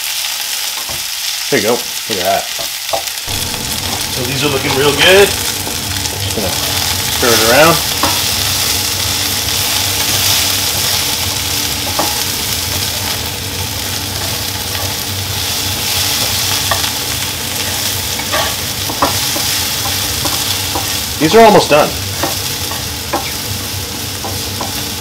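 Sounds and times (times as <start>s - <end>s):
mushrooms sizzling in a frying pan: 0.0s - 25.0s
spatula tapping a pan: 7.9s - 8.3s, 11.8s - 13.1s, 17.6s - 21.1s, 22.1s - 23.5s, 24.2s - 24.9s.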